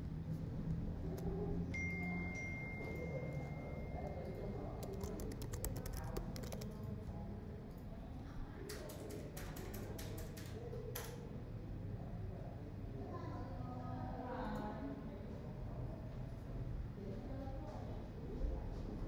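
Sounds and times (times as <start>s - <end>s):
computer keyboard typing: 2.0s - 7.9s, 8.6s - 11.3s.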